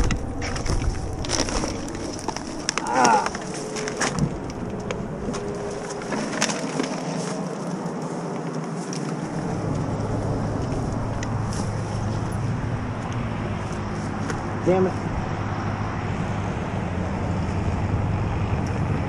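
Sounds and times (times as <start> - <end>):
rustling: 0.0 - 12.4
low motor hum: 0.0 - 19.0
noisy outdoor background: 0.0 - 19.0.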